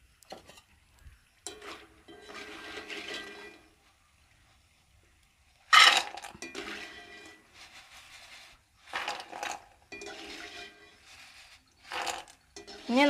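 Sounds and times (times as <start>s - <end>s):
wire skimmer scraping frying pan: 1.4s - 3.9s, 5.7s - 13.0s.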